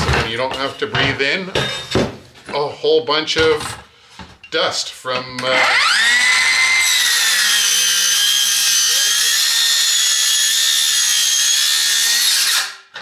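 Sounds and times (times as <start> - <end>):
circular saw cutting steel: 5.5 - 12.9.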